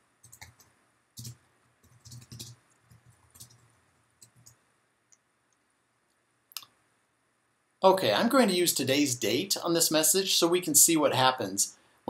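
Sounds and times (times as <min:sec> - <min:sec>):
typing on a computer keyboard: 0:00.2 - 0:04.6.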